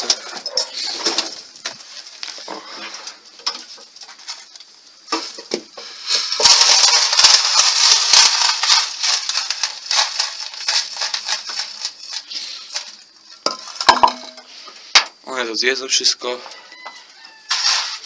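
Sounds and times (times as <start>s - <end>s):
grain pouring into a trough: 5.2s - 14.0s, 17.4s - 18.0s.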